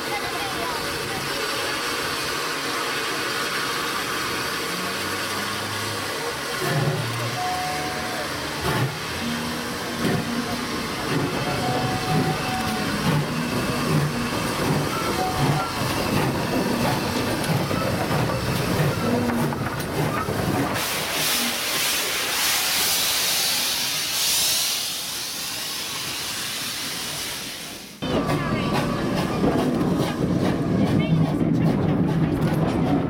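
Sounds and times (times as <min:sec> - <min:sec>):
steam locomotive engine and wheels: 0:00.0 - 0:33.0
train coaches rolling past: 0:00.0 - 0:33.0
loud hiss of steam: 0:20.4 - 0:28.0.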